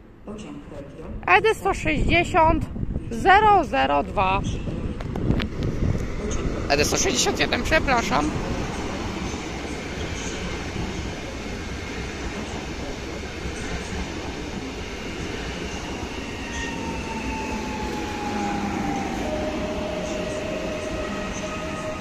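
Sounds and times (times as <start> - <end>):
train wheels rumbling on rail: 4.2 - 22.0
train whining tones: 6.0 - 22.0.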